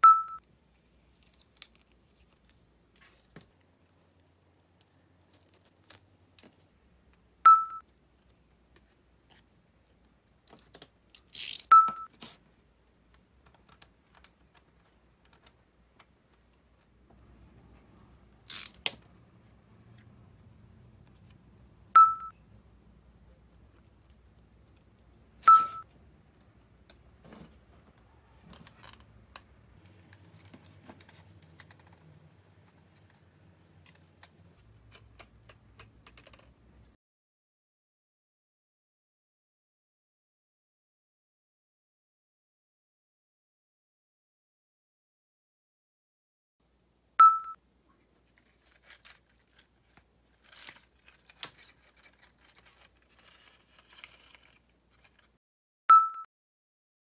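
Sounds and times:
rustling crackles: 0:48.2 - 0:55.4.

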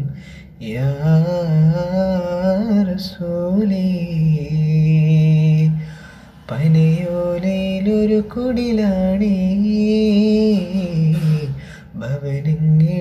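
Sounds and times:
person singing devotional song: 0:00.0 - 0:13.0.

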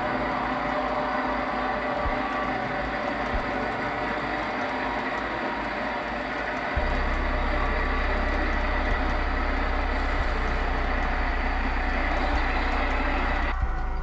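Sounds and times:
model train wheels rolling: 0:00.0 - 0:13.6
low hum: 0:06.6 - 0:14.0.

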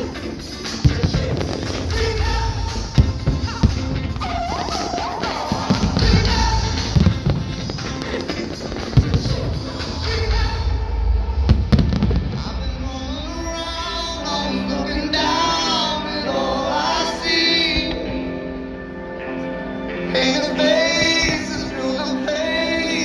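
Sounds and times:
woman singing with music: 0:00.0 - 0:23.0
firework bang: 0:00.8 - 0:14.2.

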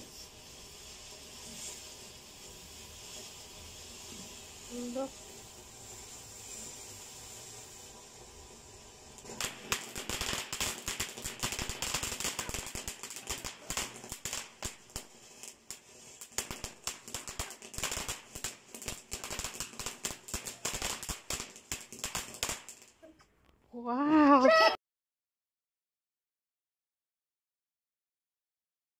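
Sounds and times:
firework fountain hissing and crackling: 0:00.0 - 0:23.2.

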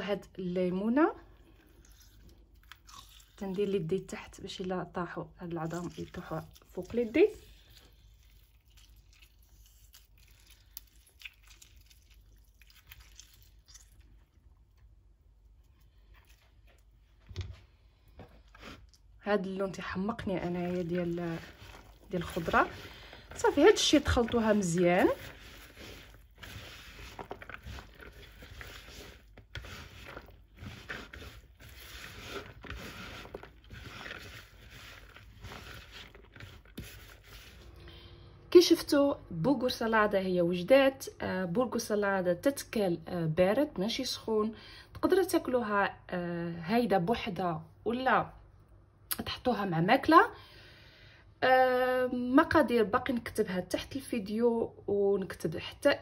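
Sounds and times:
lemon squeezed by hand crackling: 0:05.4 - 0:14.2
spoon stirring salad in bowl: 0:05.4 - 0:14.2, 0:19.6 - 0:37.8.

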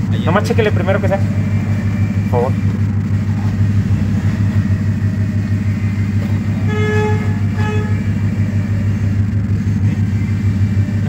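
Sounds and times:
car engine idling: 0:00.0 - 0:11.0
car horn toots: 0:04.3 - 0:10.4.

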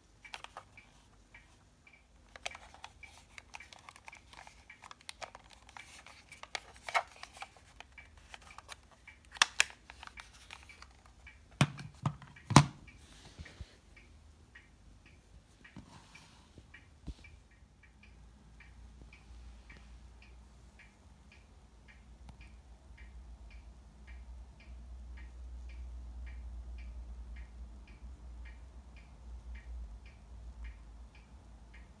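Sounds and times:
steady ticking: 0:00.0 - 0:11.6, 0:12.4 - 0:15.8, 0:16.6 - 0:32.0
plastic handling clicks: 0:00.2 - 0:01.6, 0:02.2 - 0:12.8.

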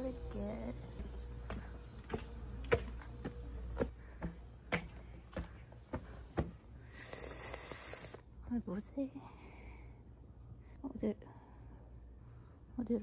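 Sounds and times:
footsteps on concrete: 0:01.0 - 0:06.7.

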